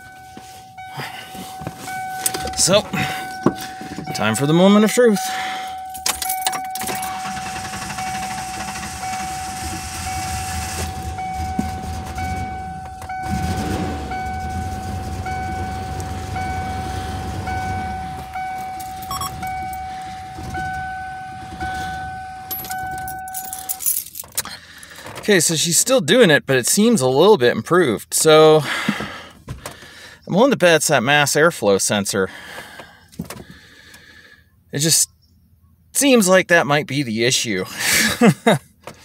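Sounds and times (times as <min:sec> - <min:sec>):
pulsing high warning tone: 0:00.0 - 0:23.8
car engine starting and idling roughly: 0:00.0 - 0:25.3.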